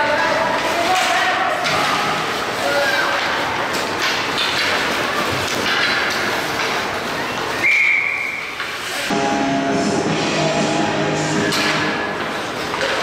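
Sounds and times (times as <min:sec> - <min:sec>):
ice rink crowd din: 0:00.0 - 0:13.0
referee whistle blast: 0:07.6 - 0:08.5
arena music over loudspeakers: 0:09.1 - 0:12.2.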